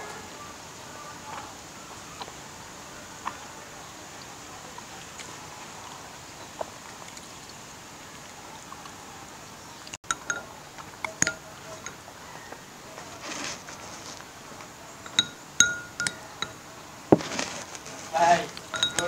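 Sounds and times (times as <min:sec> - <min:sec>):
spoon clinking against ceramic bowl: 0:10.1 - 0:12.0, 0:15.0 - 0:16.6, 0:18.6 - 0:19.0.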